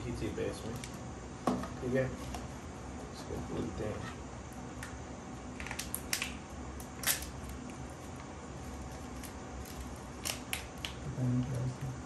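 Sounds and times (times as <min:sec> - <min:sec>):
foil packet crinkling: 0:07.0 - 0:11.0.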